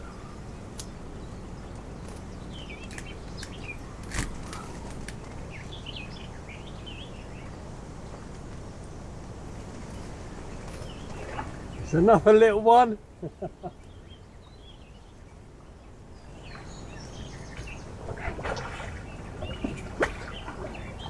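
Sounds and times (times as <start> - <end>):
birds chirping: 0.0 - 21.0
low background noise: 0.0 - 21.0.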